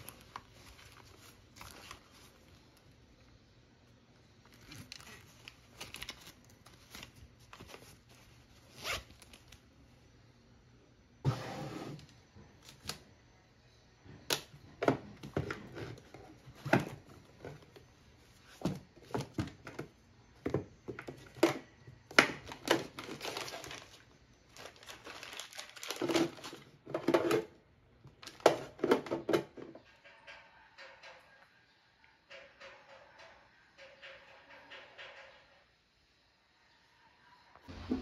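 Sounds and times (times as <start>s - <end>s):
plastic packaging crinkling: 0.0s - 3.0s, 4.4s - 9.6s, 22.2s - 27.4s, 28.2s - 28.9s.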